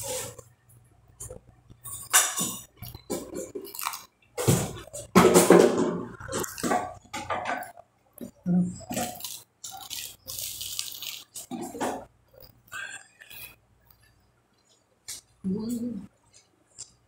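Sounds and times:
chewing crusty toasted bread: 0:01.2 - 0:04.2, 0:08.8 - 0:15.3.

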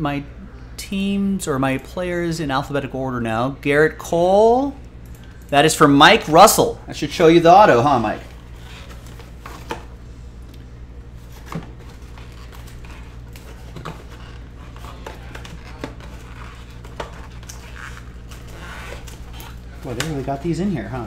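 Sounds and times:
steady low hum: 0:00.0 - 0:21.0
cardboard box rustling and scraping: 0:11.2 - 0:20.0.

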